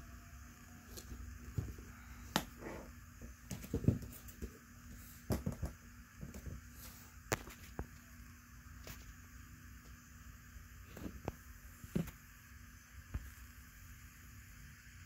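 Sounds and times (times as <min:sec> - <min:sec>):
boots knocking and bumping: 0:03.2 - 0:04.6.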